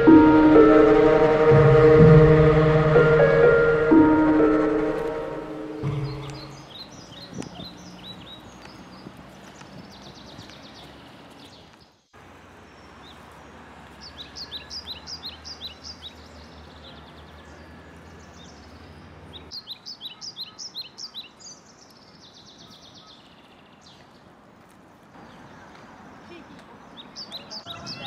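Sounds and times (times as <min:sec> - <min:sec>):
low hum: 0:00.0 - 0:06.8
songbird chirping: 0:00.0 - 0:24.4, 0:25.1 - 0:28.0
outdoor background noise: 0:00.0 - 0:28.0.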